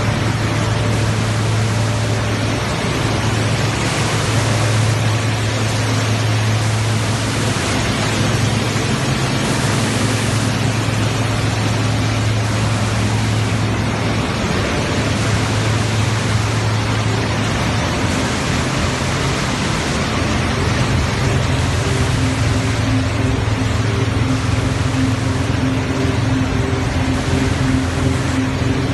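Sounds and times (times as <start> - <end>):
loud steady machine noise: 0.0 - 28.9
low motor hum: 0.0 - 28.9.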